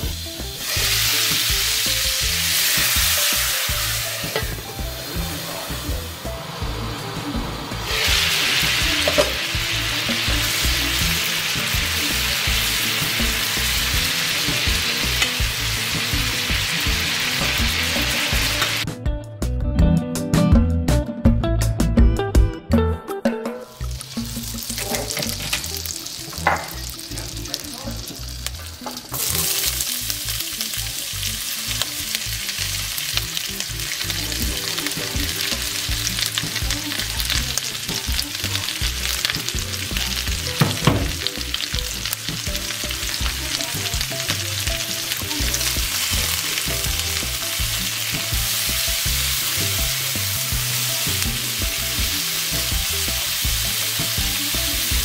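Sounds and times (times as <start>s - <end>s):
oil and butter sizzling in pan: 0.0s - 18.9s, 23.7s - 55.0s
spatula stirring vegetables: 24.0s - 55.0s
knock: 40.6s - 41.2s.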